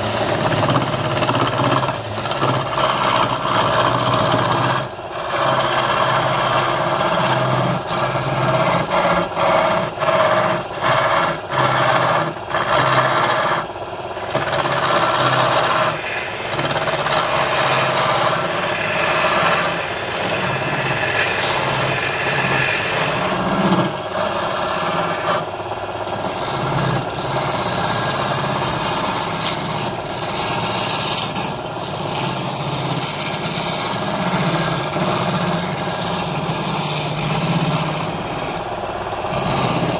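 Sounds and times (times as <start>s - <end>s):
chisel cutting wood: 0.0s - 39.9s
wood lathe running: 0.0s - 39.9s.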